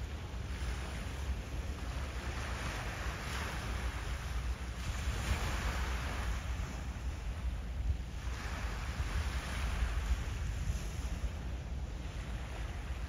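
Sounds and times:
steady low rumble: 0.0s - 13.0s
water lapping at waterline: 0.0s - 13.0s.

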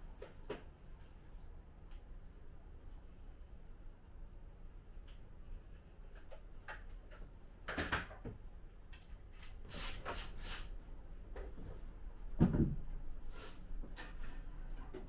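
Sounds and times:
wooden furniture knocks and scrapes: 12.4s - 12.9s.

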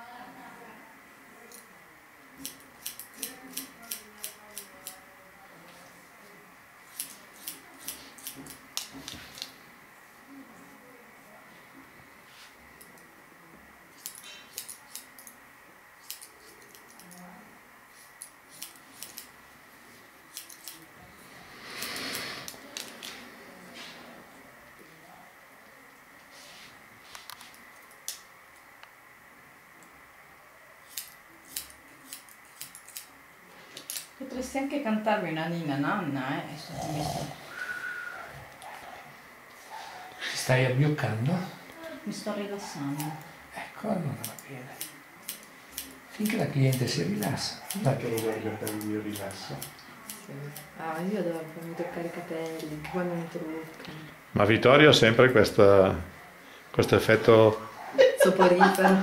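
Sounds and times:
scissors snipping hair: 2.4s - 5.0s, 6.9s - 9.5s, 13.9s - 15.4s, 16.0s - 17.3s, 17.9s - 19.4s, 20.3s - 20.9s, 21.8s - 23.2s, 27.3s - 28.2s, 30.9s - 33.1s, 33.8s - 34.2s, 44.2s - 51.8s, 58.6s - 59.0s.

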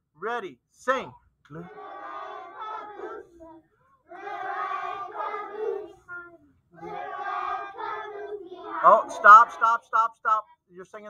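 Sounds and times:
children singing in unison: 1.6s - 9.8s.

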